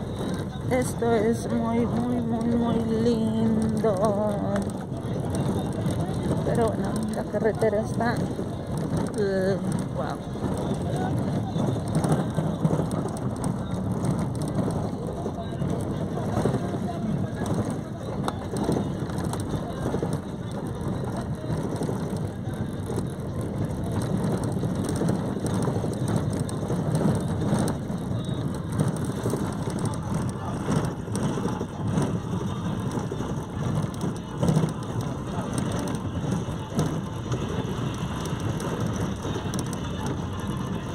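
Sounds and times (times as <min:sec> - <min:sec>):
vehicle road rumble: 0:00.0 - 0:40.9.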